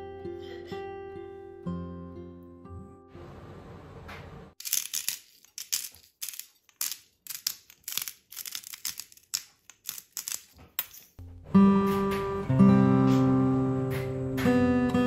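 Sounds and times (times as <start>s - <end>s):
spice mill grinding: 4.6s - 11.1s.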